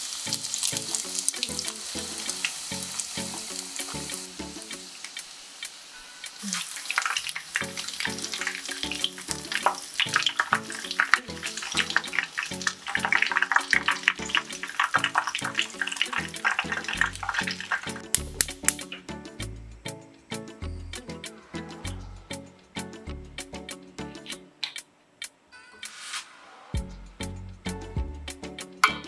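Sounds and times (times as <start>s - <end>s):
background music with steady beat: 0.0s - 6.2s, 7.6s - 29.0s
oil sizzling and crackling: 0.0s - 19.1s.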